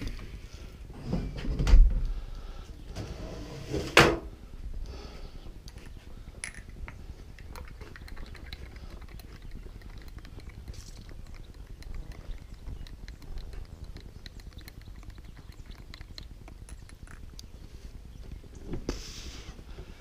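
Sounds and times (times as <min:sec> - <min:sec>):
faint scattered clicks: 0:05.6 - 0:18.7.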